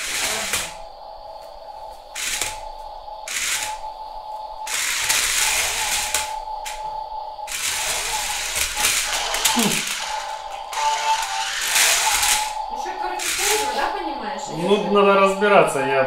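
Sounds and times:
steady high whine: 0:00.0 - 0:16.0
toy car motors whirring: 0:07.5 - 0:12.6.

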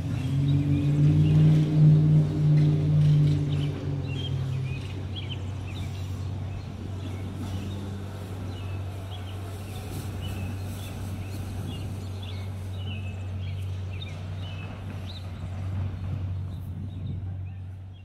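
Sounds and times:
small birds chirping: 0:02.5 - 0:18.0.

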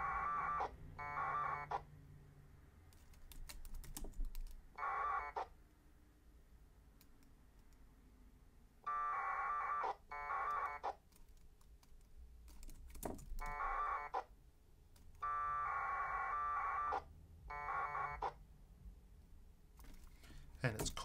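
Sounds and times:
keyboard clicks: 0:02.9 - 0:04.6, 0:10.5 - 0:13.6.

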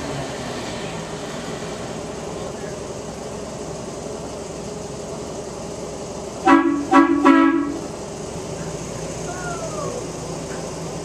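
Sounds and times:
miniature train horn toots: 0:06.5 - 0:07.8.

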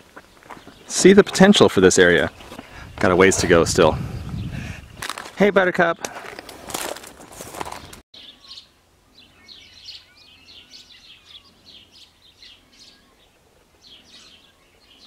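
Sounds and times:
small birds chirping: 0:00.0 - 0:05.0, 0:07.7 - 0:15.0
whistled bird notes: 0:08.2 - 0:15.0.

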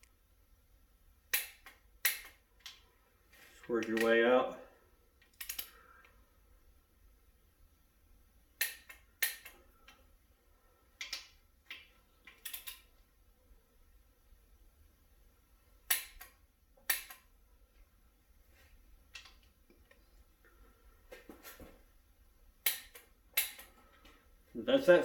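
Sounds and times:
torque wrench clicking: 0:01.3 - 0:02.8, 0:05.2 - 0:05.8, 0:08.6 - 0:09.6, 0:11.0 - 0:12.9, 0:22.6 - 0:23.7.

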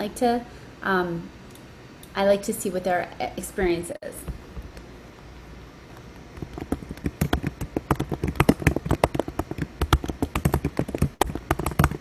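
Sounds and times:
fingers tapping phone screen: 0:06.2 - 0:12.0.

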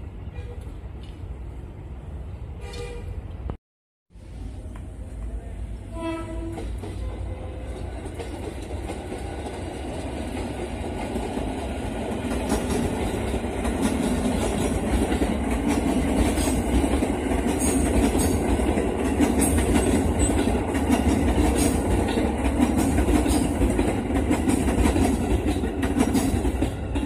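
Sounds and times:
rail joint clicks: 0:00.4 - 0:01.4, 0:02.6 - 0:03.6, 0:06.2 - 0:27.0
train wheels rumbling: 0:04.3 - 0:27.0
train horn blast: 0:05.9 - 0:07.8.

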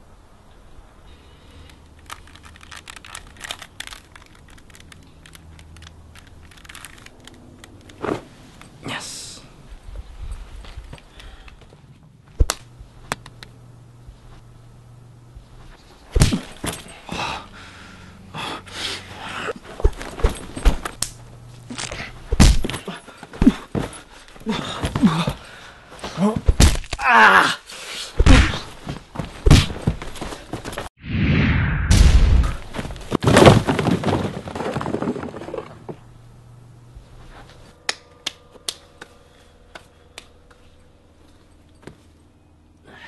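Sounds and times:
plastic puzzle cube clicks: 0:01.8 - 0:07.9
grunts: 0:16.9 - 0:17.6, 0:21.8 - 0:26.4
punch impacts and whooshes: 0:22.3 - 0:22.7, 0:28.2 - 0:28.8, 0:29.4 - 0:30.0, 0:31.0 - 0:32.8.

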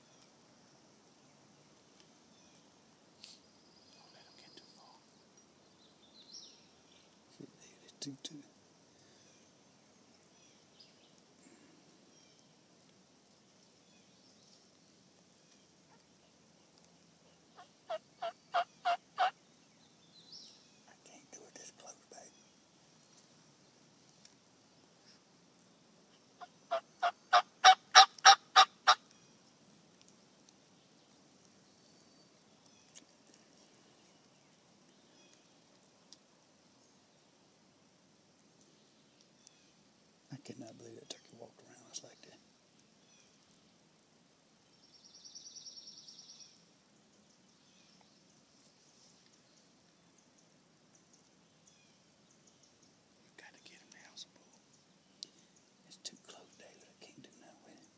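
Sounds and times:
songbird trill: 0:00.0 - 0:37.5, 0:38.3 - 0:57.9
wild turkey yelping: 0:17.5 - 0:19.4, 0:26.4 - 0:29.0.

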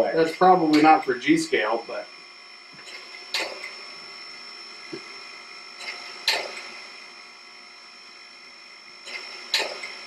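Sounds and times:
steady electronic whine: 0:00.0 - 0:10.0.

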